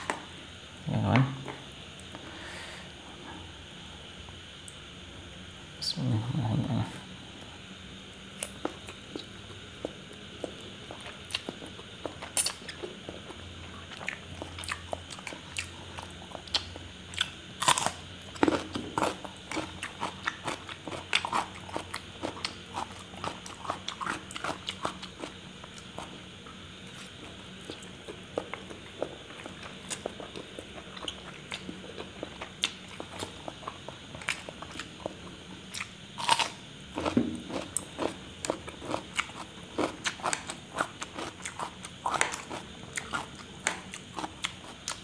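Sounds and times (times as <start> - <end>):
crunchy cucumber bites: 16.3 - 26.1, 27.0 - 45.0.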